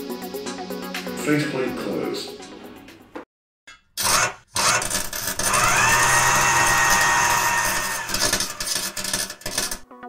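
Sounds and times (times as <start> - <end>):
power drill whining: 4.0 - 9.8
rasping sawing stroke: 4.0 - 9.8.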